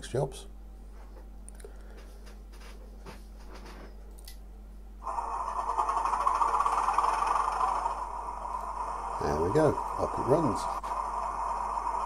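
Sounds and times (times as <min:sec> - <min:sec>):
diesel engine through small speaker: 0:05.0 - 0:12.0.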